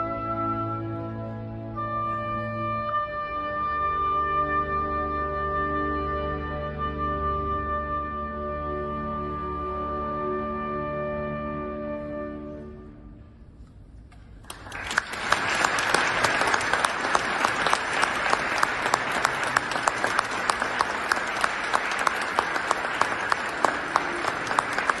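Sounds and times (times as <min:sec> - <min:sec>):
audience applause: 0:14.4 - 0:25.0.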